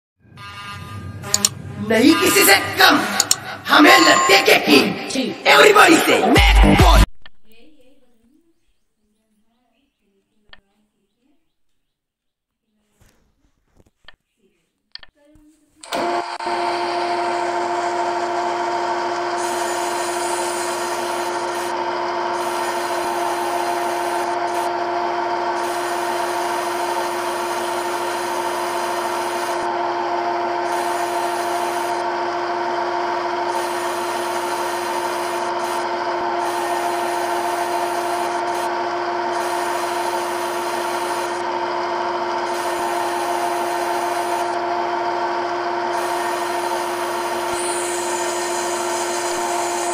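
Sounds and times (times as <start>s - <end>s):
lathe spindle hum: 15.8s - 49.9s
cutting hiss: 33.5s - 41.4s.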